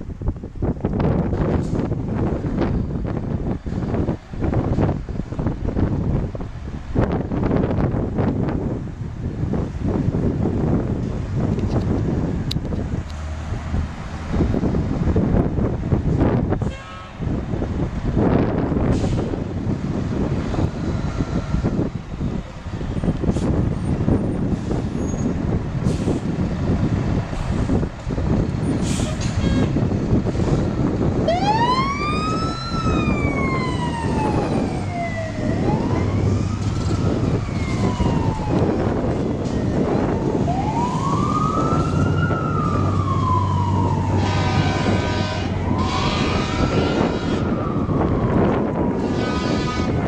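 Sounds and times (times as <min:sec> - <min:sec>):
fire truck engine running: 0:00.0 - 0:50.0
siren wailing: 0:31.2 - 0:39.1, 0:40.0 - 0:50.0.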